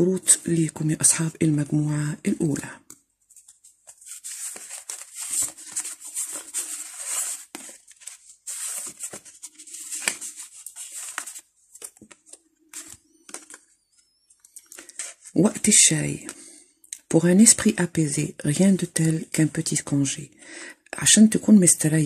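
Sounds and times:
cards being shuffled: 3.2s - 13.8s.

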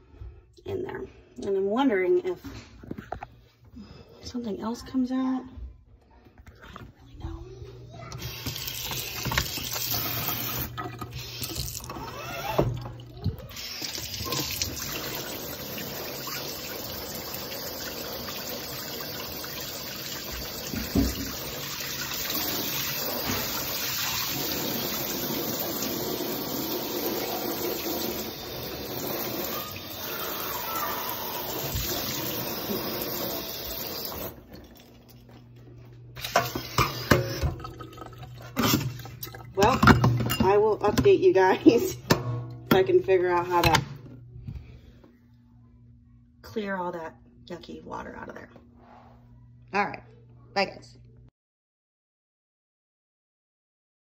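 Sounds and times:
water running from faucet: 8.2s - 35.0s, 36.2s - 40.6s.

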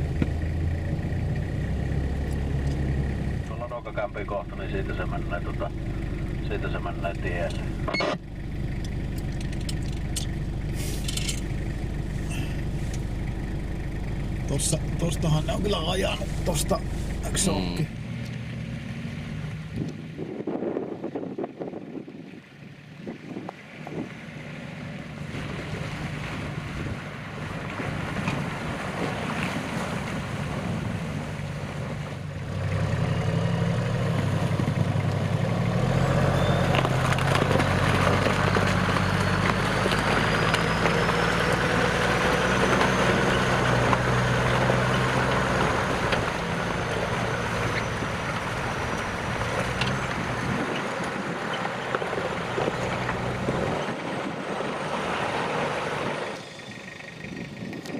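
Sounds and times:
suv engine under load: 0.0s - 57.9s.

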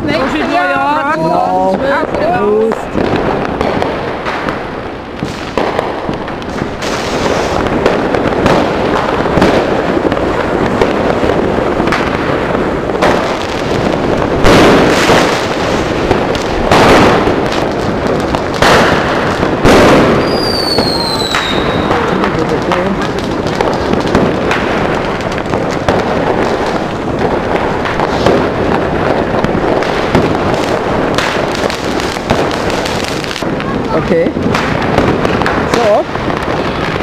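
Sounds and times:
fireworks hissing and crackling: 0.0s - 37.0s
loud firework bangs: 0.0s - 37.0s
whistling firework: 5.2s - 12.2s, 18.3s - 37.0s.

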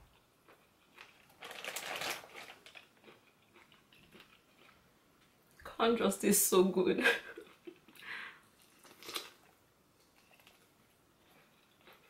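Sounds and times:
crisp crunch of eating corn: 0.5s - 4.8s, 8.6s - 12.0s.

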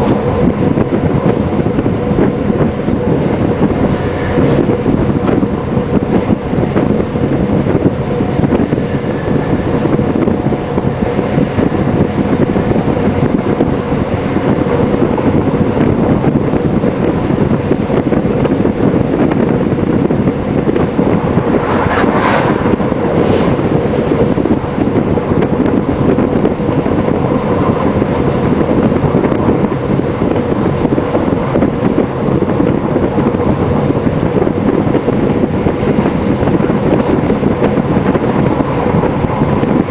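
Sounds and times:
railcar engine drone: 0.0s - 39.9s
rolling noise: 18.4s - 34.0s.

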